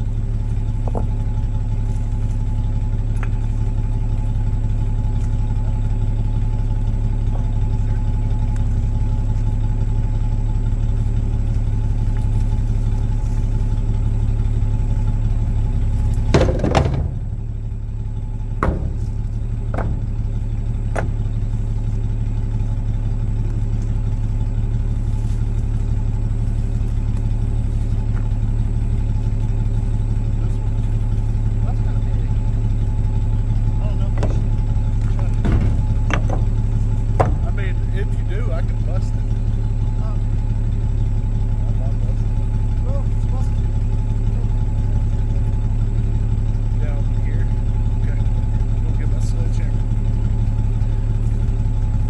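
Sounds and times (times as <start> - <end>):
engine clatter: 0.0 - 52.0
pickup engine idling: 0.0 - 52.0
sharp knocks: 16.1 - 17.6, 18.5 - 21.4, 34.1 - 37.9.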